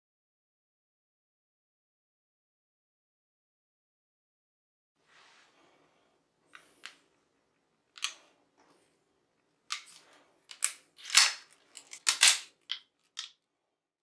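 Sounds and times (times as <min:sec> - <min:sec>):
pistol metallic clicks: 0:10.5 - 0:13.4
pistol slide slamming forward: 0:10.6 - 0:12.5.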